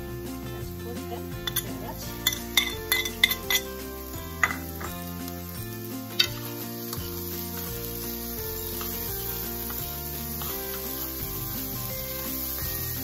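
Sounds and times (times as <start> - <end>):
background music: 0.0 - 13.0
metal spoon clinking on dishes: 1.4 - 3.7, 4.4 - 5.0.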